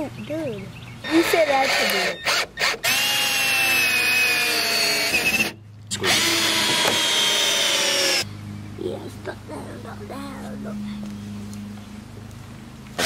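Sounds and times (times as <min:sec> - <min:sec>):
drill-driver whining under load: 0:01.1 - 0:08.3.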